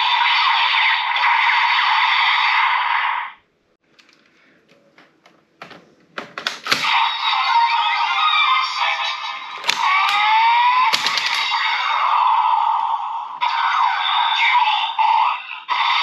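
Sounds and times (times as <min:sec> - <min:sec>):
plastic clicks: 0:03.9 - 0:06.8, 0:10.9 - 0:11.5.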